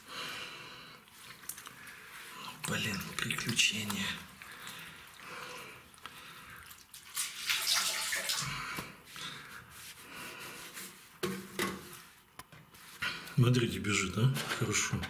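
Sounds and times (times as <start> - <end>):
water trickling and splashing: 1.1 - 8.8.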